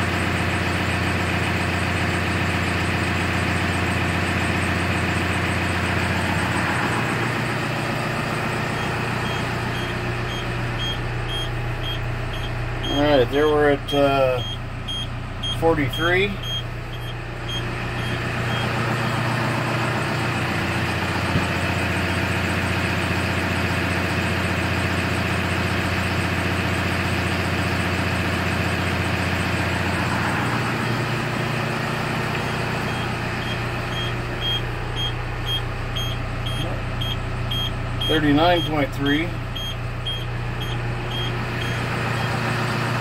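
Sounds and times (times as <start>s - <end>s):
diesel engine idling: 0.0s - 43.0s
high warning beeper: 8.7s - 19.2s, 32.4s - 42.4s.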